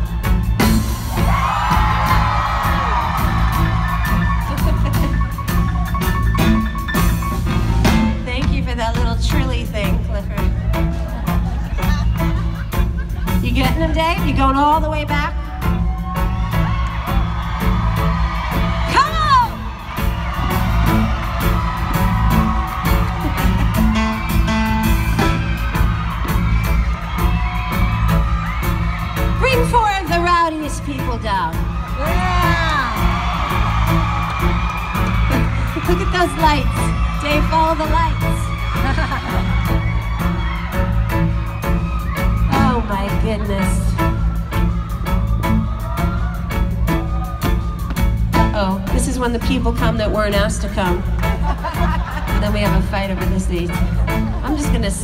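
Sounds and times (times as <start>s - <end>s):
bass line: 0.0s - 55.0s
drum kit beat: 0.0s - 55.0s
keyboard notes: 15.5s - 38.8s.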